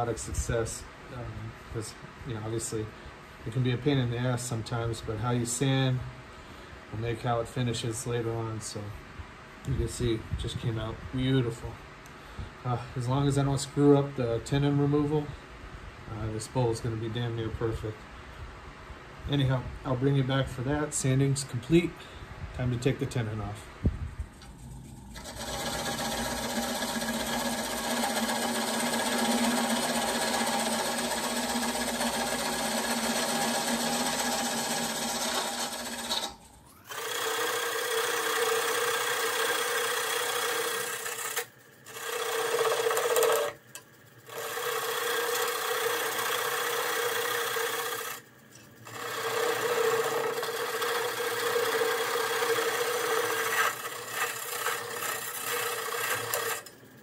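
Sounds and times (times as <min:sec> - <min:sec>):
turning tool scraping wood: 0:24.2 - 0:56.8
wood lathe motor hum: 0:24.3 - 0:57.0.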